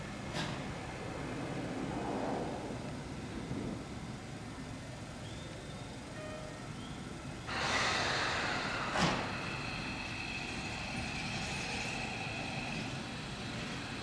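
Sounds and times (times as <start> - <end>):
electric train whine: 0.0 - 14.0
air hiss from train brakes: 5.3 - 14.0.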